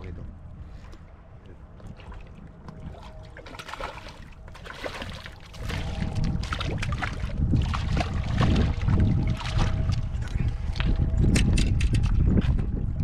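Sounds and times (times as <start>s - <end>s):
fish splashing in water: 1.9s - 10.0s.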